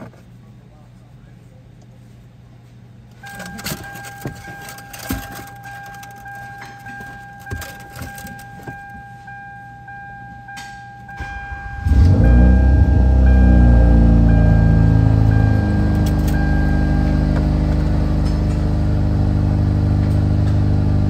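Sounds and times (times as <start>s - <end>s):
keys clicking and jingling: 3.2s - 9.0s, 15.8s - 16.5s
electronic warning tone: 3.2s - 18.0s
car engine starting and revving: 11.2s - 21.0s.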